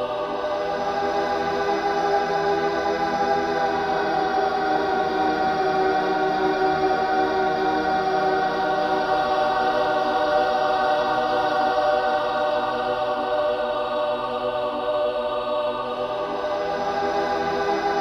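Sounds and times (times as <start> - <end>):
slow ambient music with held chords: 0.0 - 18.0.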